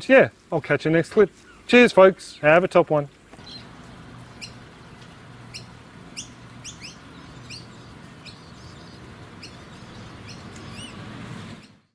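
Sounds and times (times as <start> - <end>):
low background hum: 0.0 - 11.9
small birds chirping: 1.3 - 1.7, 3.3 - 11.9.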